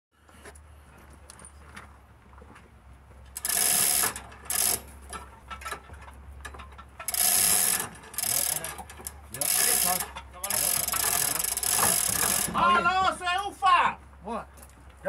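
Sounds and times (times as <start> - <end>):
ratchet wrench clicking: 3.4 - 5.2, 7.0 - 12.6.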